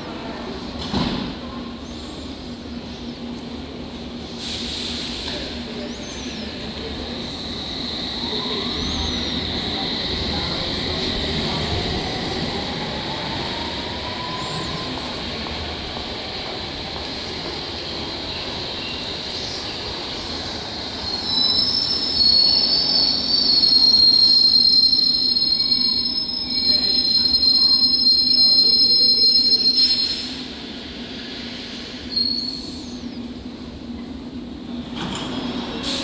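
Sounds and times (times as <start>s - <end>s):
high-pitched train squeal: 7.3s - 10.5s, 20.9s - 30.5s, 31.9s - 33.0s.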